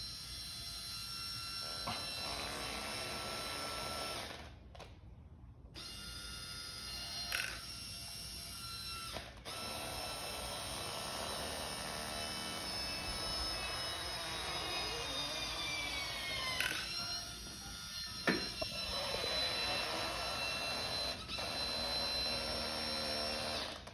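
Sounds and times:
electric motor whine: 0:05.8 - 0:23.9.

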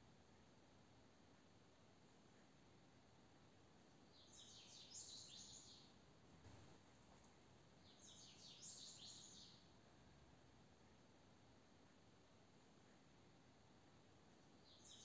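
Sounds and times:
faint bird twittering: 0:04.1 - 0:05.9, 0:07.8 - 0:09.6.

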